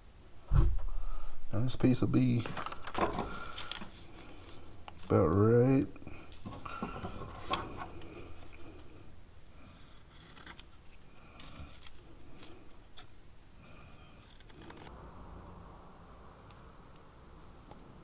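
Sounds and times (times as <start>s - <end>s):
scissors cutting cloth: 14.2s - 14.9s.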